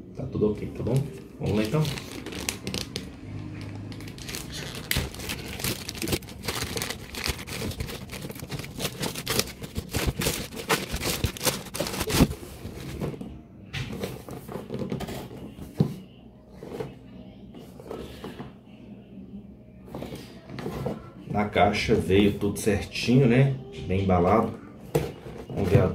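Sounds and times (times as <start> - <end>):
plastic bag tearing and crinkling: 1.4 - 12.8.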